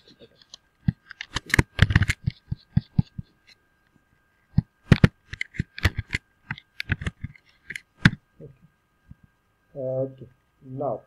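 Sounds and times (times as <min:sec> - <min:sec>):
computer keyboard typing: 0:01.2 - 0:03.2.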